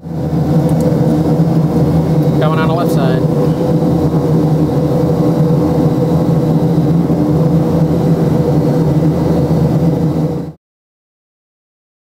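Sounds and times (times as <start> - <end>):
turboprop engines running: 0.0 - 10.6.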